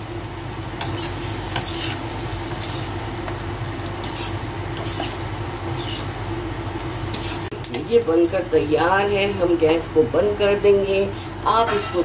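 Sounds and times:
steady low hum: 0:00.0 - 0:11.8
metal spatula scraping pan: 0:00.8 - 0:02.9, 0:04.0 - 0:06.2, 0:07.1 - 0:07.5.

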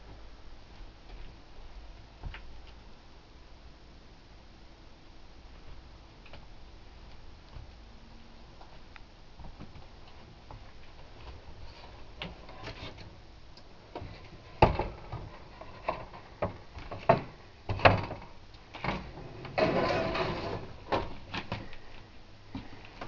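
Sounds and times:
scraping noise: 0:19.2 - 0:20.8.

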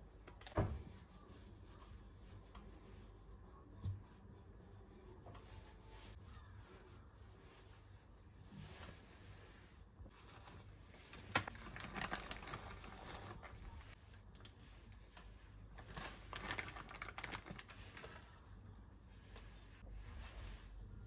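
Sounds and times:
crinkling and rustling: 0:00.1 - 0:03.0, 0:08.4 - 0:21.0.

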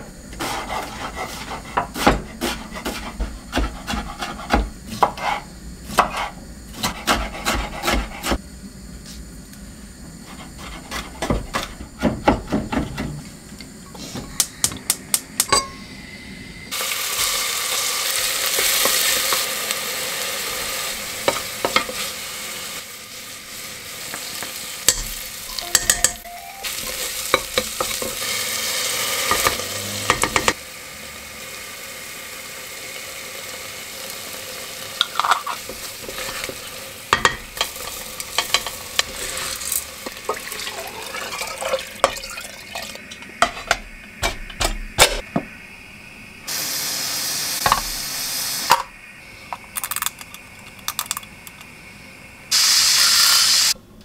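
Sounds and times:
onion sizzling in hot oil: 0:16.7 - 0:45.9, 0:46.5 - 0:49.3, 0:51.0 - 0:53.8
spoon clinking against pot: 0:24.9 - 0:26.3.

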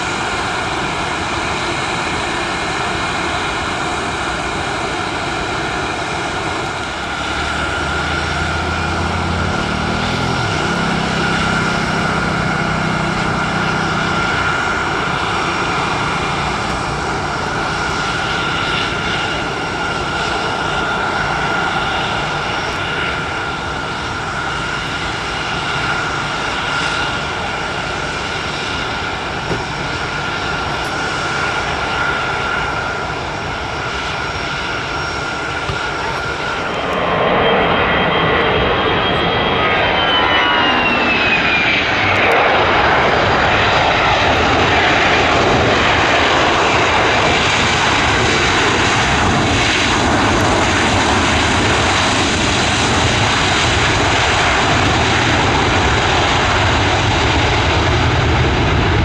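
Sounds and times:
jet engines whining: 0:00.0 - 0:59.0
high whistle sliding down: 0:37.4 - 0:42.0.

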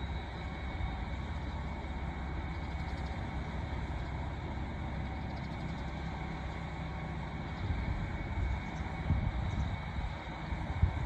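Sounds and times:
diesel train engines rumbling: 0:00.0 - 0:11.0.

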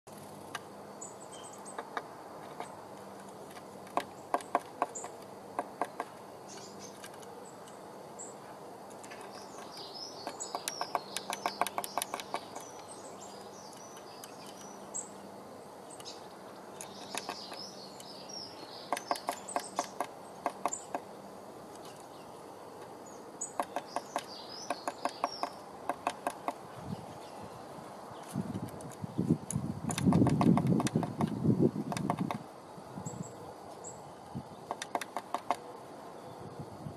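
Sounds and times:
small birds chirping: 0:00.1 - 0:36.9
beak tapping on wood: 0:01.7 - 0:07.8, 0:09.0 - 0:14.8, 0:16.8 - 0:18.2, 0:18.8 - 0:21.1, 0:23.5 - 0:26.7, 0:28.6 - 0:32.4, 0:34.6 - 0:35.6.

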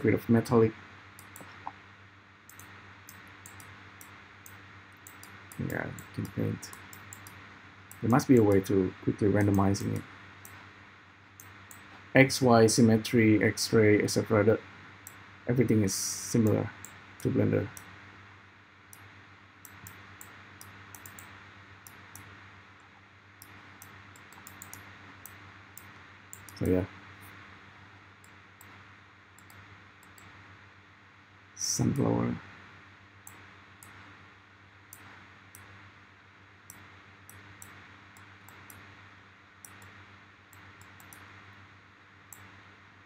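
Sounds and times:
low electrical hum: 0:00.0 - 0:43.0
computer mouse clicking: 0:01.2 - 0:01.8, 0:02.5 - 0:08.7, 0:09.4 - 0:10.6, 0:18.9 - 0:22.3, 0:23.4 - 0:26.7, 0:29.4 - 0:30.4, 0:36.7 - 0:38.9, 0:39.6 - 0:41.3, 0:42.3 - 0:42.5.

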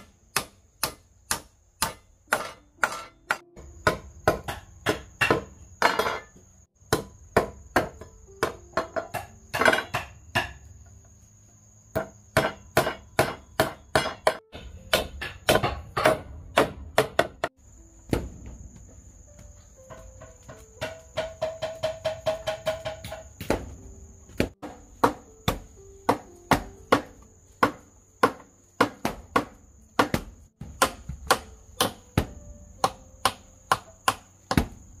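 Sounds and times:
machete chopping bamboo: 0:00.0 - 0:06.1, 0:06.8 - 0:10.6, 0:11.9 - 0:17.5, 0:24.4 - 0:34.8.

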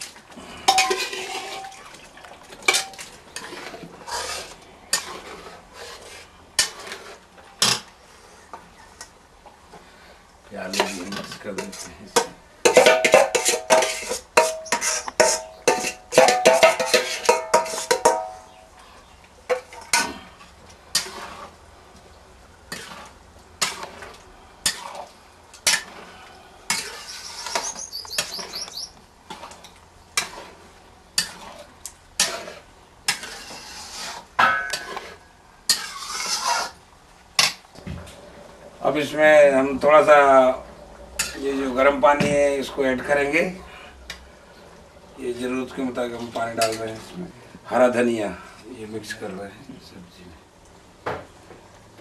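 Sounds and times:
metal spatula scraping a metal pan: 0:00.6 - 0:01.8, 0:02.6 - 0:08.4, 0:10.6 - 0:18.6, 0:19.5 - 0:21.6, 0:22.7 - 0:29.6, 0:30.2 - 0:36.8, 0:41.2 - 0:41.8.

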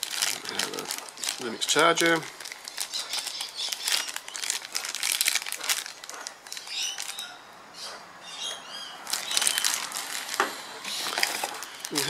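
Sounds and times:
plastic bag crinkling: 0:00.0 - 0:07.3, 0:09.0 - 0:12.0
bird chirps: 0:06.4 - 0:09.8.

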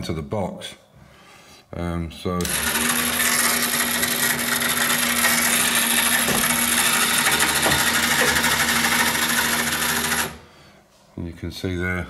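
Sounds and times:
electric motor whirring and rattling: 0:02.4 - 0:10.5.

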